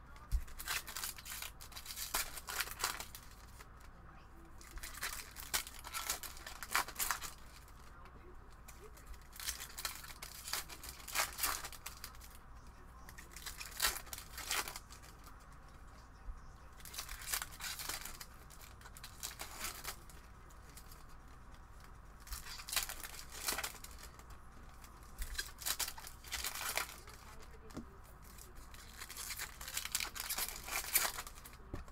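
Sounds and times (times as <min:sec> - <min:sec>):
foil wrappers tearing and crinkling: 0:00.1 - 0:03.7, 0:04.6 - 0:08.0, 0:08.6 - 0:12.4, 0:13.0 - 0:15.8, 0:16.7 - 0:31.9.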